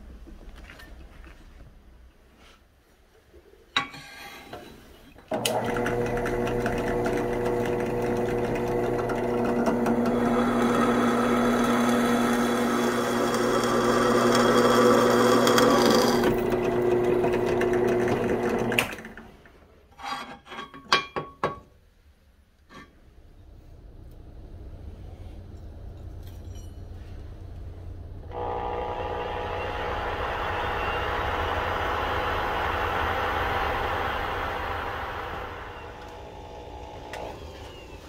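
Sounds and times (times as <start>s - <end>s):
drill press motor humming: 5.3s - 19.2s, 28.2s - 38.0s
drill bit cutting steel: 9.8s - 16.6s, 28.3s - 38.0s
metallic clinks: 25.9s - 27.0s.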